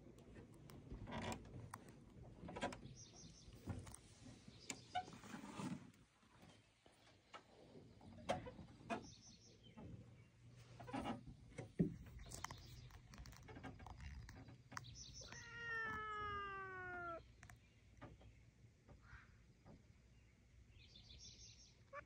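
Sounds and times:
cat meowing: 0:15.2 - 0:17.3.

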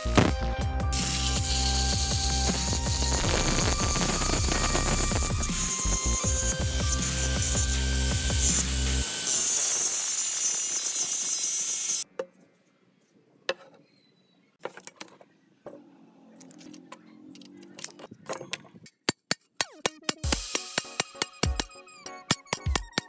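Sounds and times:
angle grinder grinding steel: 0:00.9 - 0:12.0.

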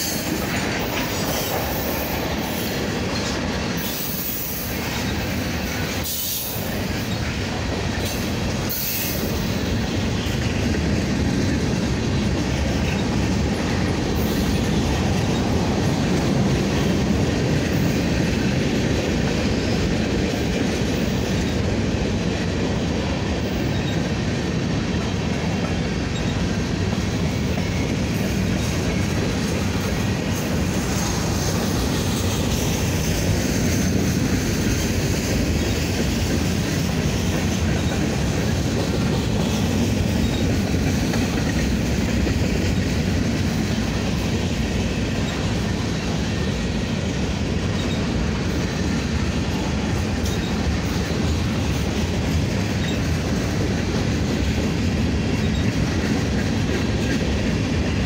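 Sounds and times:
train wheels rumbling on rails: 0:00.0 - 0:58.0
high wheel squeal: 0:26.1 - 0:26.4, 0:47.7 - 0:48.2, 0:50.2 - 0:50.7, 0:52.8 - 0:53.1.

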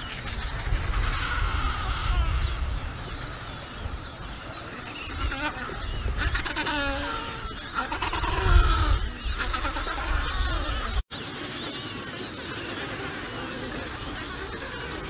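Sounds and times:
wind buffeting microphone: 0:00.0 - 0:11.0
penguin braying call: 0:04.9 - 0:11.0
penguins squawking: 0:05.0 - 0:11.0.

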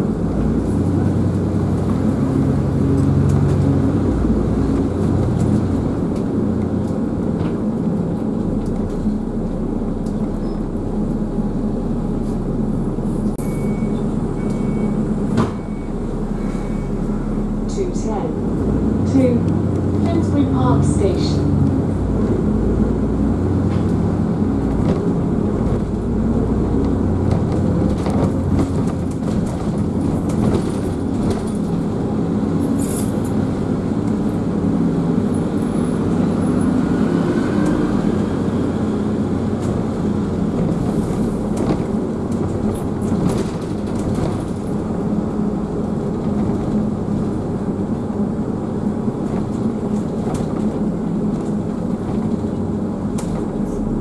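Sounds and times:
bus engine and road rumble: 0:00.0 - 0:54.0
faint rising whine: 0:09.1 - 0:17.9.

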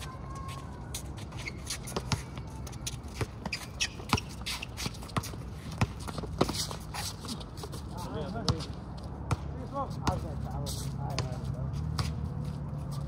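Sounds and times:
basketball bouncing on asphalt: 0:01.9 - 0:10.3, 0:11.1 - 0:12.3
sneakers scuffing: 0:10.0 - 0:13.0.

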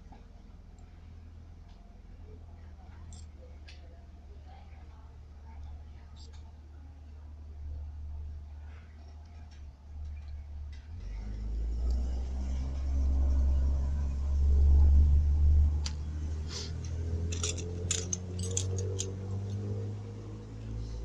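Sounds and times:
small metallic clicks and clinks: 0:02.9 - 0:03.8, 0:05.6 - 0:06.5, 0:16.7 - 0:20.0
steady low hum: 0:11.6 - 0:21.0.

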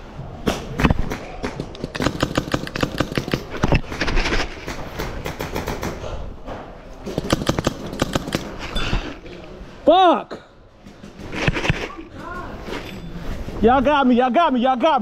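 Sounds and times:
paintball markers firing: 0:00.5 - 0:06.0.

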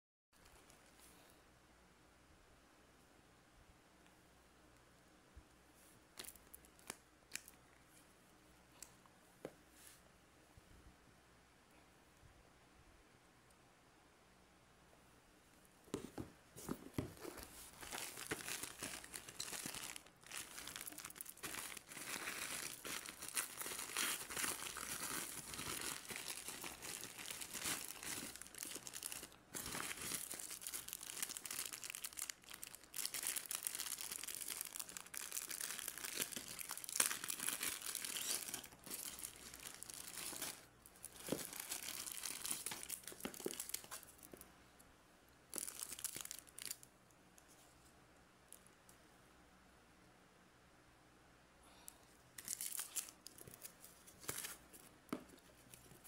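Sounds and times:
plastic bags crinkling: 0:17.0 - 0:44.4, 0:45.5 - 0:46.8, 0:52.4 - 0:54.7.

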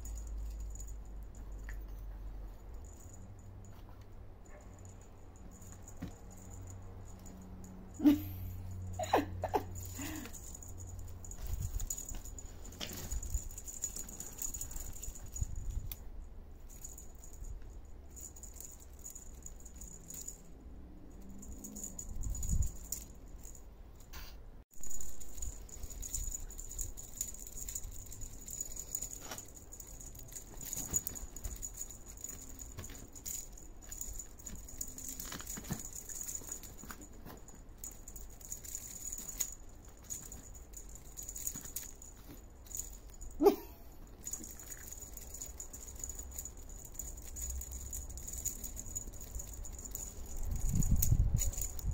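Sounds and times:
plastic balls rattling and rustling: 0:09.7 - 0:16.0, 0:24.8 - 0:43.4, 0:44.0 - 0:51.9.

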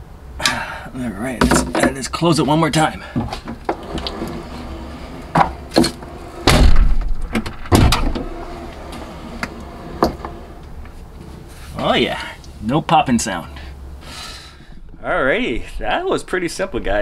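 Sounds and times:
tailgate heavy thud: 0:03.0 - 0:10.6.

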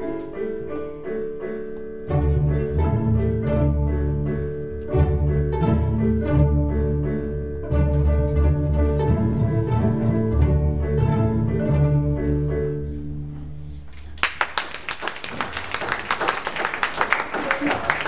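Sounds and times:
string ensemble playing: 0:00.0 - 0:13.9.

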